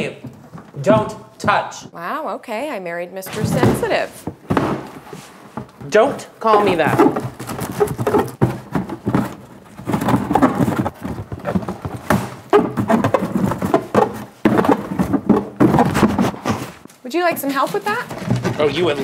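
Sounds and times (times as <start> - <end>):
cardboard box thumps: 3.3 - 16.9.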